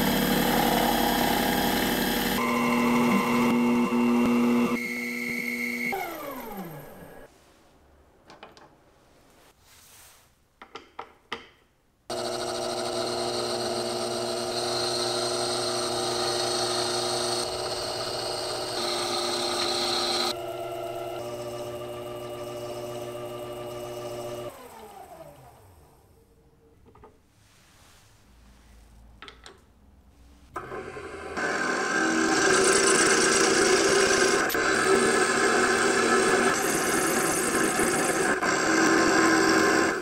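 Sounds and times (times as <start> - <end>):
metal lathe whining: 0.0 - 7.3, 12.1 - 25.5, 30.6 - 40.0.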